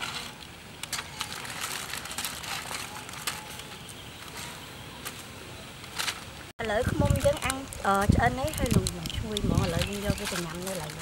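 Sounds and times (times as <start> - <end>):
foil crinkling on grill grate: 0.0 - 4.4, 5.9 - 11.0
sharp clicks and ticks: 6.6 - 11.0.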